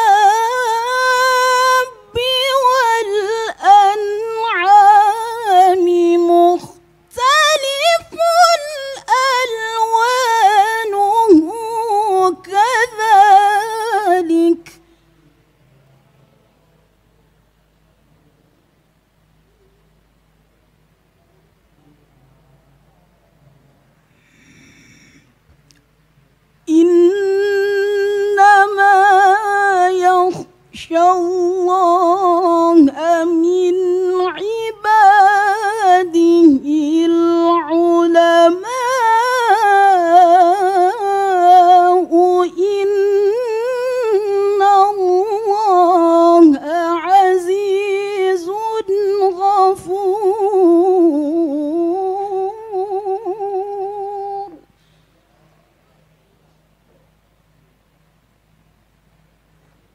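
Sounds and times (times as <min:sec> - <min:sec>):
woman reciting melodically: 0:00.0 - 0:15.0, 0:26.6 - 0:54.8
woman breathing: 0:24.1 - 0:25.4.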